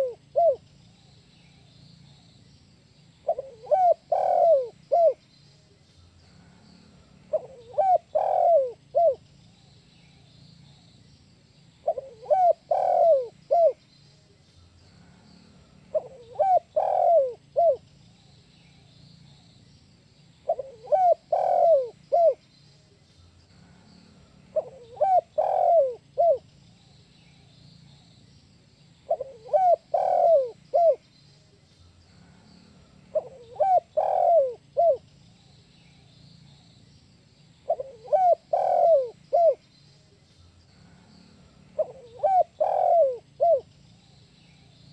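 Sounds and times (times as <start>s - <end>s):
dove cooing: 0.0s - 0.6s, 3.2s - 5.2s, 7.3s - 9.2s, 11.8s - 13.8s, 15.9s - 17.8s, 20.4s - 22.4s, 24.5s - 26.4s, 29.1s - 31.0s, 33.1s - 35.0s, 37.7s - 39.6s, 41.4s - 43.7s.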